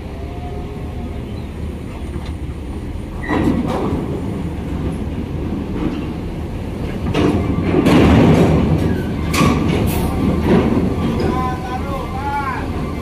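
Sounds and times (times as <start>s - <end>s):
wheels clanking over metal plates: 6.9s - 11.6s.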